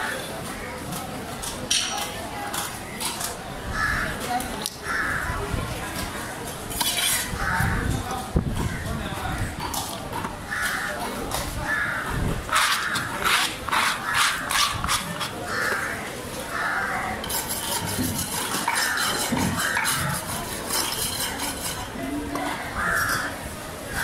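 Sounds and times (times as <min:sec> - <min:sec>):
crows cawing: 0:03.7 - 0:04.2, 0:04.8 - 0:05.4, 0:10.5 - 0:11.0, 0:11.6 - 0:13.1, 0:15.5 - 0:17.2, 0:18.7 - 0:20.2, 0:22.6 - 0:23.4.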